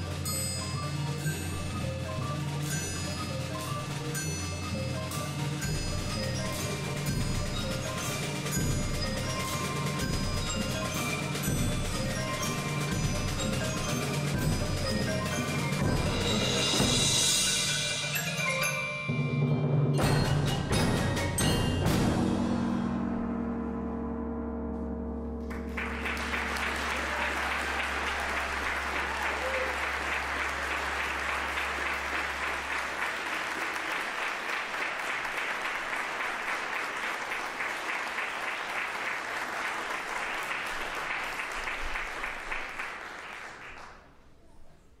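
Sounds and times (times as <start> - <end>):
percussion chord ringing: 0.0 - 33.1
audience applauding: 25.4 - 44.2.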